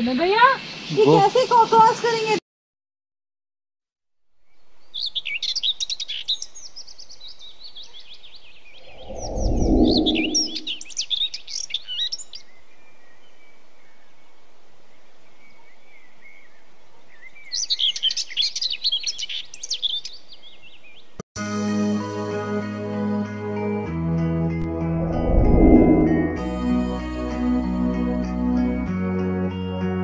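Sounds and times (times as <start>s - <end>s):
birds chirping and singing: 4.5s - 14.3s, 15.3s - 21.1s
deep rumble: 8.8s - 10.8s, 24.6s - 26.7s.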